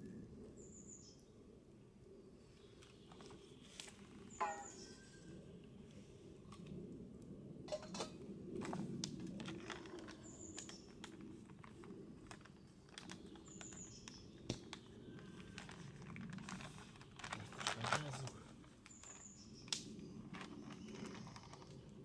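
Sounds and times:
bird chirps: 0:04.3 - 0:05.4
foil pouches rustling: 0:08.6 - 0:19.3, 0:19.9 - 0:22.0.

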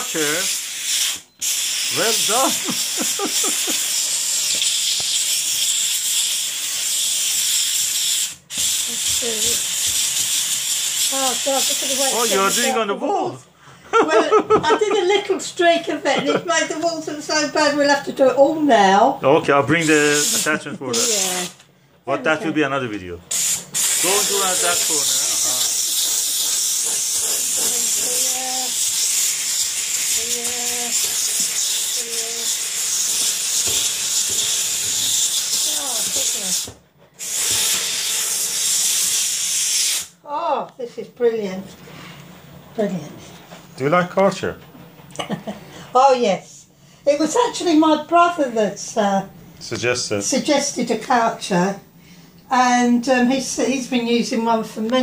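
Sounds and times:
steam cleaner hissing: 0:00.0 - 0:12.8, 0:19.7 - 0:21.6, 0:23.3 - 0:40.2.

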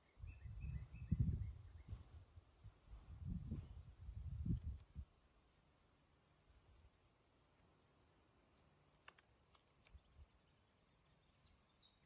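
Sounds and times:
faint bird chirps: 0:00.0 - 0:02.2, 0:09.9 - 0:12.0
wind buffeting microphone: 0:00.2 - 0:05.1.

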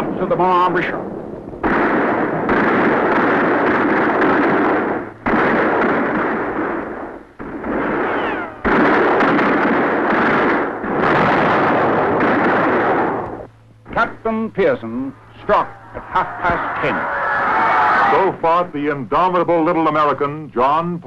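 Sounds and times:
cannon blasts: 0:00.0 - 0:14.2.

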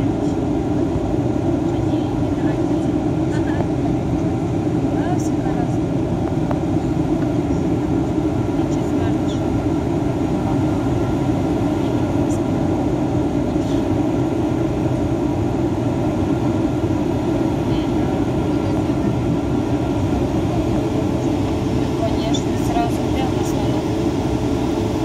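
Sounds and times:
airplane cabin drone: 0:00.0 - 0:25.0
faint steady hums: 0:00.0 - 0:25.0.

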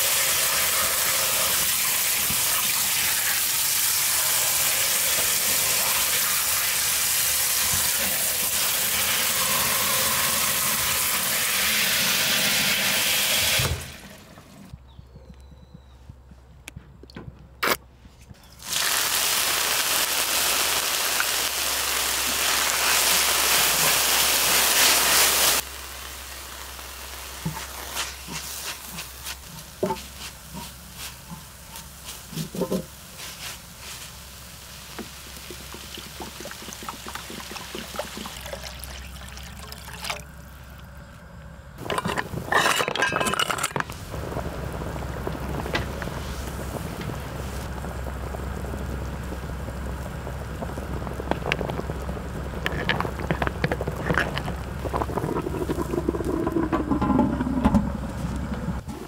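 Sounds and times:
loud sizzle in pan: 0:00.0 - 0:14.0, 0:18.6 - 0:38.8, 0:43.9 - 0:56.6
steady boil: 0:00.0 - 0:14.7, 0:18.4 - 0:59.0
stirring scrapes and clinks: 0:27.4 - 0:33.6, 0:41.8 - 0:43.9, 0:52.6 - 0:57.8
liquid pouring: 0:35.0 - 0:40.8, 0:50.6 - 0:57.7.

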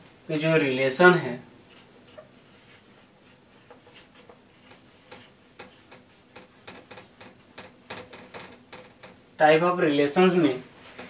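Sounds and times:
marker writing on whiteboard: 0:01.7 - 0:06.8.

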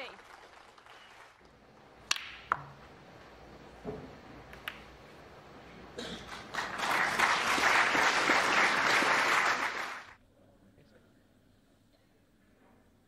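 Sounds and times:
audience applauding: 0:00.0 - 0:01.5, 0:05.8 - 0:10.2.

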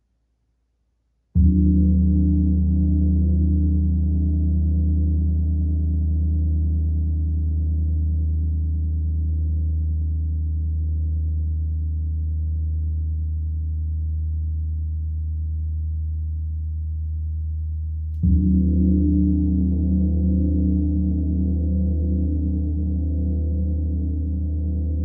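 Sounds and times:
gong struck and ringing: 0:18.2 - 0:25.0.

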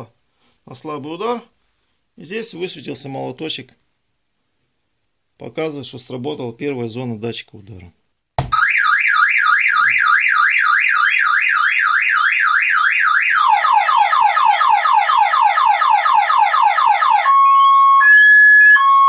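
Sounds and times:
car alarm siren: 0:08.5 - 0:19.0.

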